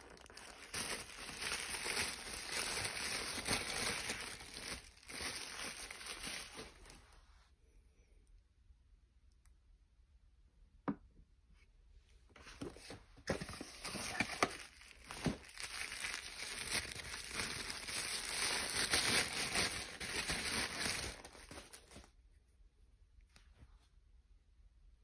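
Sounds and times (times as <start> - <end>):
wrapping paper crinkling: 0.0 - 7.1, 12.6 - 22.1.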